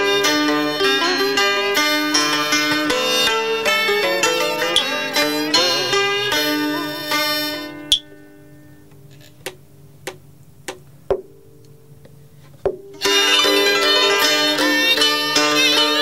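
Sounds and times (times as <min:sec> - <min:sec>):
traditional string and flute ensemble: 0:00.0 - 0:08.0, 0:13.0 - 0:16.0
plucked string notes: 0:00.0 - 0:16.0.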